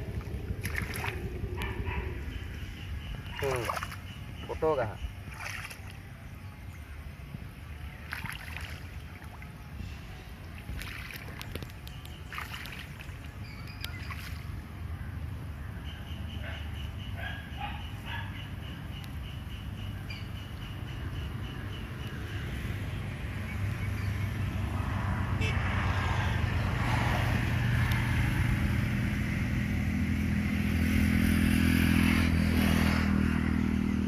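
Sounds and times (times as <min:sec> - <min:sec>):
steady low rumble: 0:00.0 - 0:04.4.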